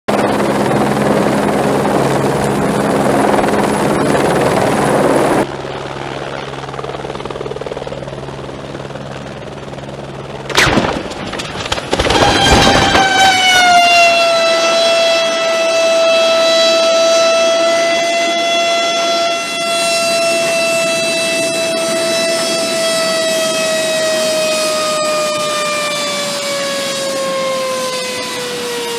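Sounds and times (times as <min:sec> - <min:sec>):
helicopter hovering: 0:00.1 - 0:28.9
helicopter crashing: 0:10.3 - 0:16.8.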